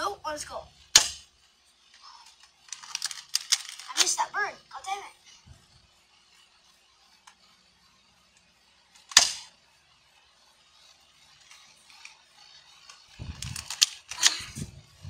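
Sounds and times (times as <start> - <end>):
airsoft pistol shot: 1.0 - 1.2, 9.1 - 9.5.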